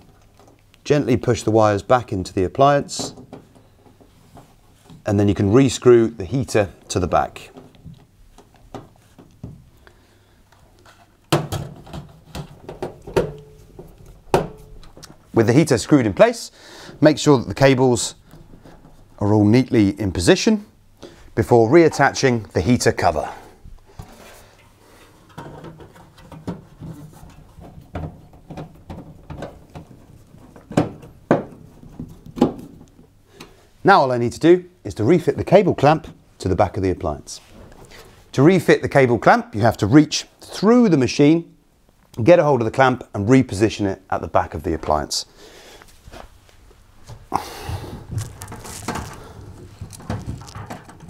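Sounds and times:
sheet metal knocks and rattles: 0:25.3 - 0:32.8, 0:48.0 - 0:51.0.

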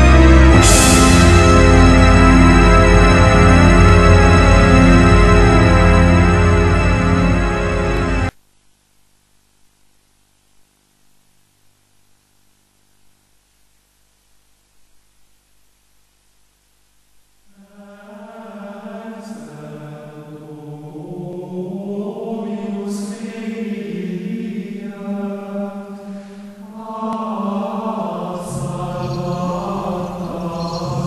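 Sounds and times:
choir-like chant: 0:17.5 - 0:31.0.

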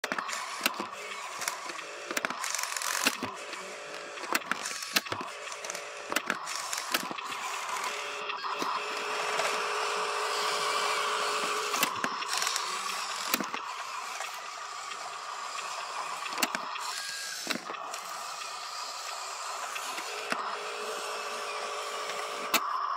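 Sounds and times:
sharp clicks and knocks: 0:00.0 - 0:07.9, 0:11.7 - 0:20.4
toy truck electric motor whining: 0:00.0 - 0:22.9.

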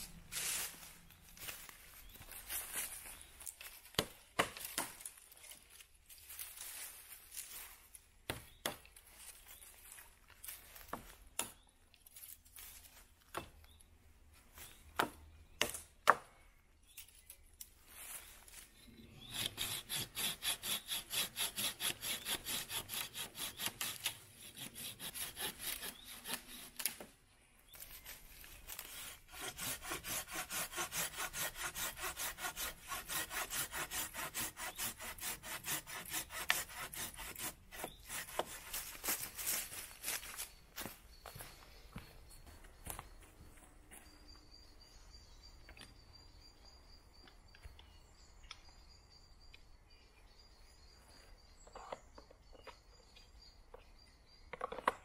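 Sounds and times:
saw cutting wood: 0:19.2 - 0:27.0, 0:28.7 - 0:39.0.

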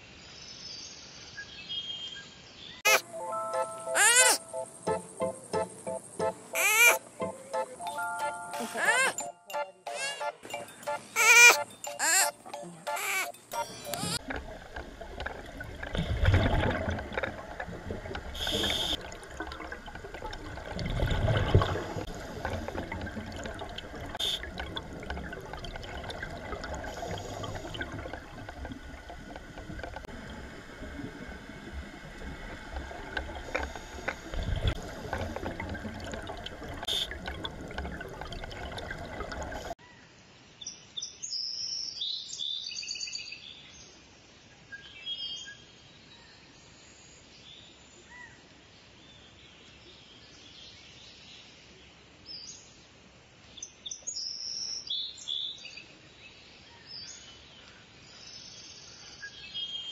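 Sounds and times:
birds chirping: 0:02.7 - 0:08.0, 0:08.6 - 0:09.4, 0:10.6 - 0:14.2
gurgling exhaled bubbles: 0:13.6 - 0:39.8
underwater hiss: 0:18.0 - 0:19.8, 0:20.8 - 0:24.5, 0:26.4 - 0:29.4, 0:30.0 - 0:37.4.

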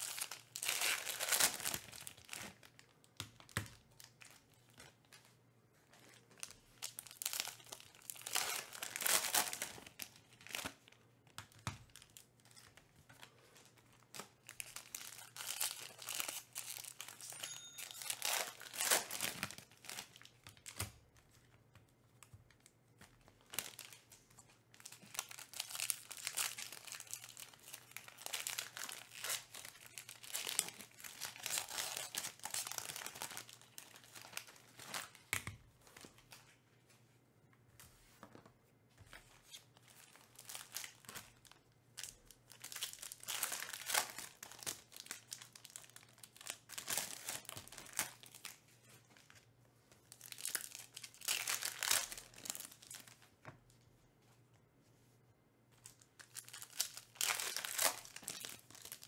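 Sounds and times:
foil wrappers crinkling and tearing: 0:00.0 - 0:05.2, 0:06.4 - 0:10.9, 0:11.8 - 0:20.8, 0:22.5 - 0:35.3, 0:39.9 - 0:49.3, 0:50.1 - 0:53.2, 0:55.9 - 0:59.0.

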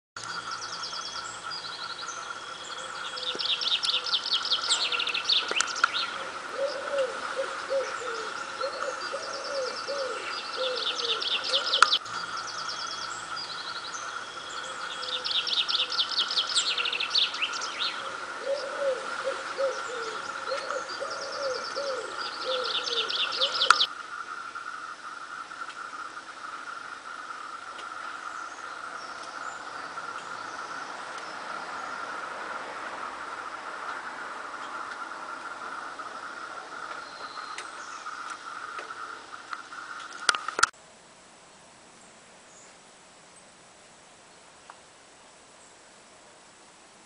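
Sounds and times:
songbird trills: 0:00.2 - 0:32.3, 0:33.0 - 0:40.7
wood pigeons cooing: 0:02.7 - 0:12.6, 0:14.6 - 0:23.9.

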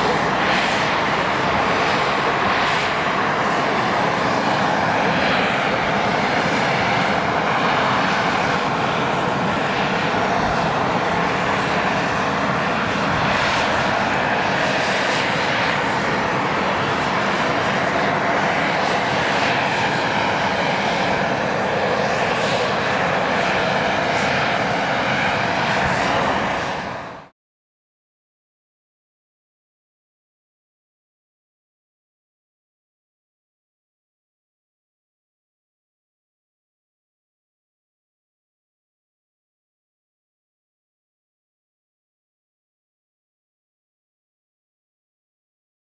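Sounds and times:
aircraft piston engine droning: 0:00.0 - 0:27.3.

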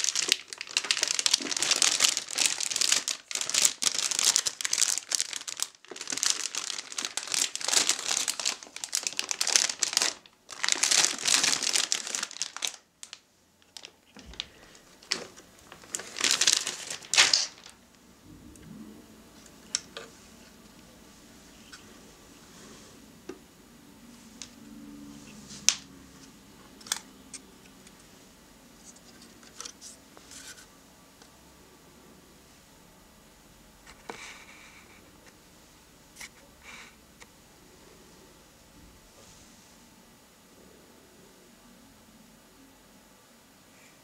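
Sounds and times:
plastic bag crinkling: 0:00.0 - 0:17.9.

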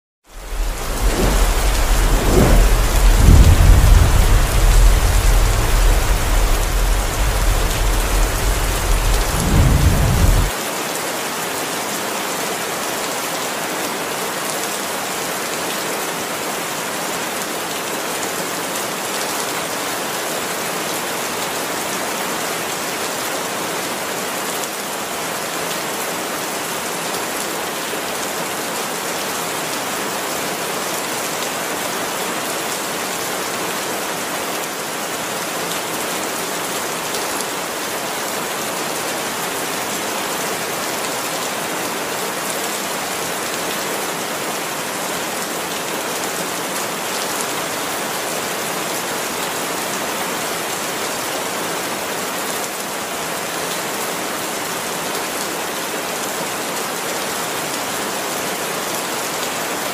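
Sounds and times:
heavy rain splashing on ground: 0:00.3 - 0:59.9
deep rumble: 0:00.4 - 0:10.5.

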